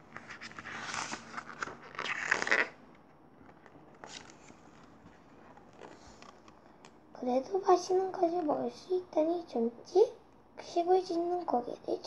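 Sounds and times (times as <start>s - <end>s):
book pages being turned: 0.0s - 7.0s.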